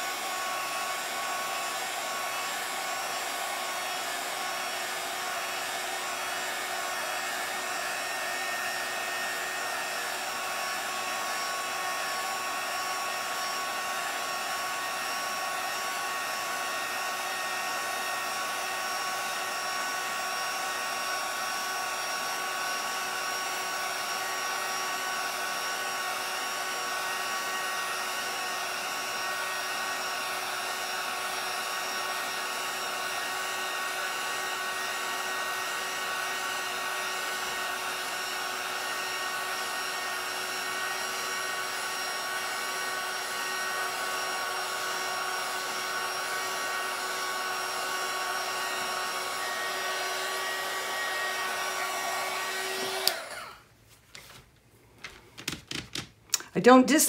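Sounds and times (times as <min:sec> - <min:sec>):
heat gun blowing with whine: 0:00.0 - 0:53.7.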